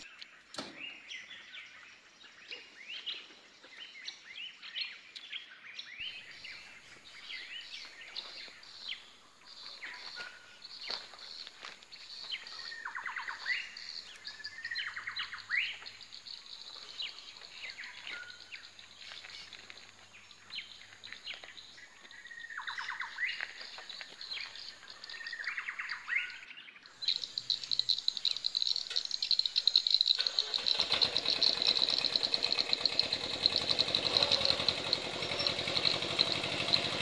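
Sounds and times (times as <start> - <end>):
birds calling: 0.0 - 37.0
high insect drone: 27.0 - 37.0.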